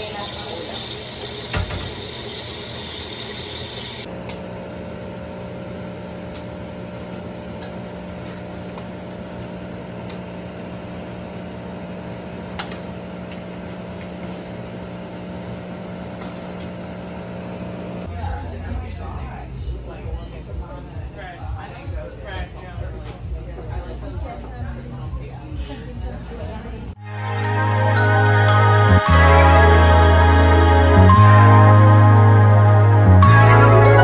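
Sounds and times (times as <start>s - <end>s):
milk frother hissing: 0.0s - 4.1s.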